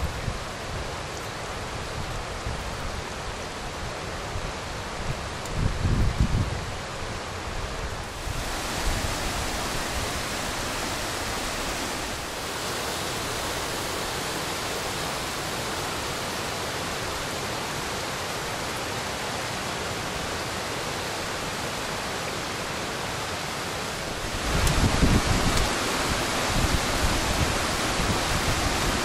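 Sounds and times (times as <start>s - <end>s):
waterfall rushing: 6.6s - 29.0s.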